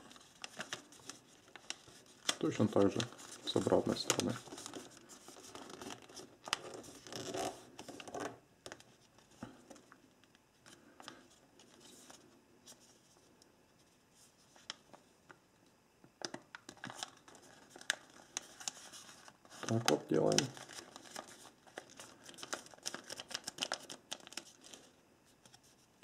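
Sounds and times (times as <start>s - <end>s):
paper folding and crinkling: 0.0s - 10.0s, 16.2s - 26.0s.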